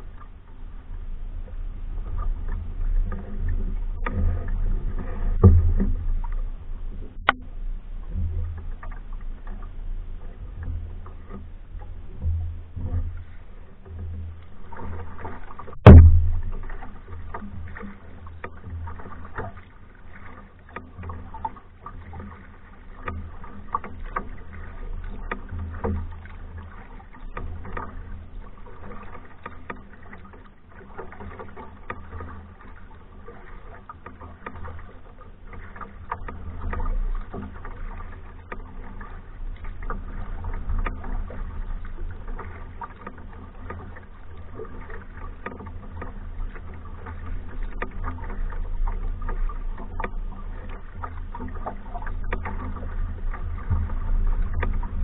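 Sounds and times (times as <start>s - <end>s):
steady low rumble: 0.0s - 20.7s, 36.0s - 55.0s
paddle splashing in water: 0.0s - 55.0s
loud sharp knock: 15.8s - 16.5s.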